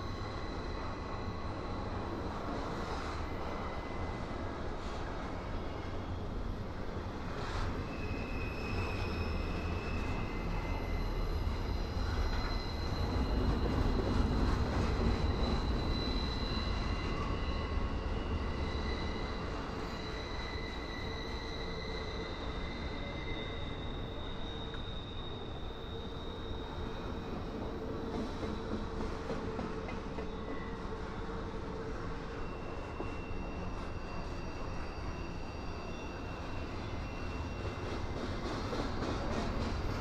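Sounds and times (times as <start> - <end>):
freight train rumbling past: 0.0 - 40.0
high wheel squeal: 7.5 - 28.7, 29.8 - 40.0.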